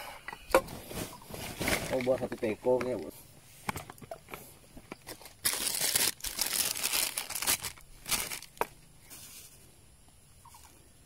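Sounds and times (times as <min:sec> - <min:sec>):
foil packet crinkling: 0:01.1 - 0:02.4, 0:05.0 - 0:08.7.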